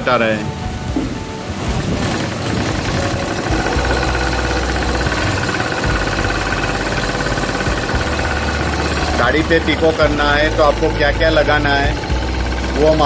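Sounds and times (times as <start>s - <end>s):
sewing machine running: 1.6s - 13.0s.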